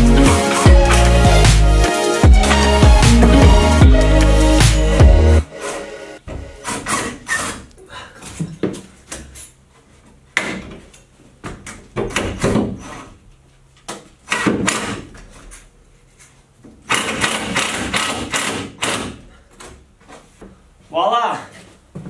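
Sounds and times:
power driver driving screws: 16.9s - 19.2s.

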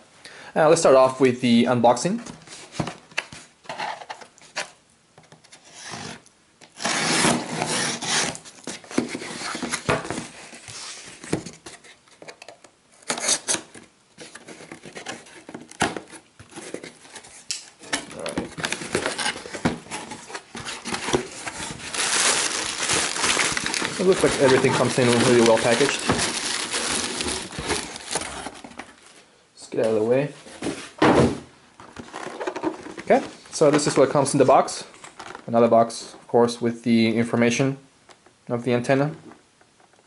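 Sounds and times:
plastic packaging rustling: 13.0s - 29.2s, 31.8s - 35.6s
cardboard rubbing and knocking: 18.3s - 29.0s.

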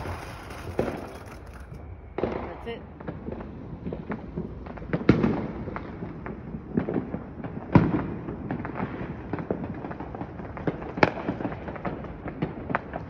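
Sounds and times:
loud firework bang: 0.0s - 9.7s
firecrackers popping: 0.0s - 13.0s.

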